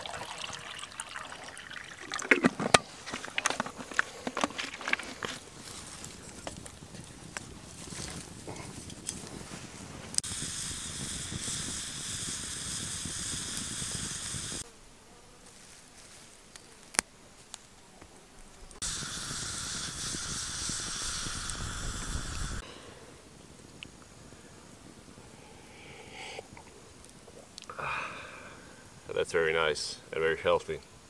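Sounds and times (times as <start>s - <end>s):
outdoor ambience: 0.0s - 31.0s
insects buzzing and chirring: 10.2s - 31.0s.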